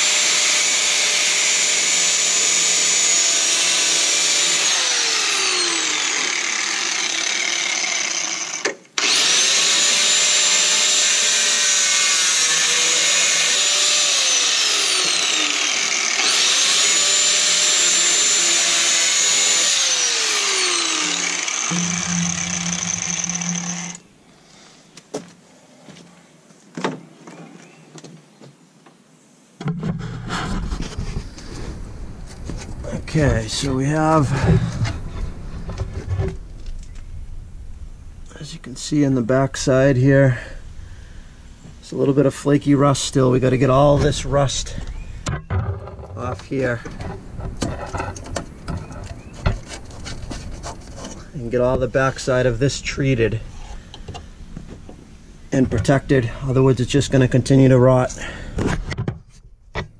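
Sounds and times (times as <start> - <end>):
angle grinder grinding metal: 0.0 - 24.1.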